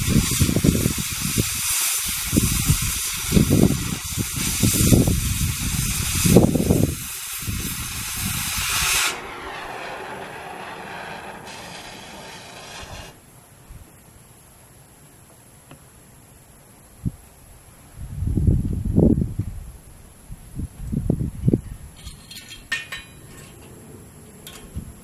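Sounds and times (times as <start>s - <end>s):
cutting torch hissing: 0.0s - 13.2s.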